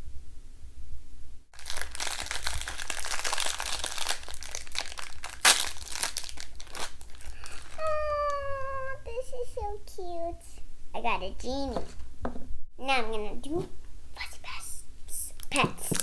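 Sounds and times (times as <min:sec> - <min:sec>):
plastic wrappers crinkling and tearing: 0:01.6 - 0:08.4, 0:15.4 - 0:16.0.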